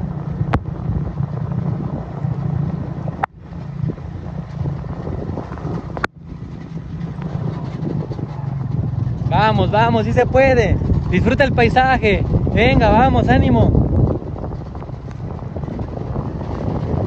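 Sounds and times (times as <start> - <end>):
vehicle engine running: 0.0 - 17.0
wind on microphone: 0.0 - 17.0.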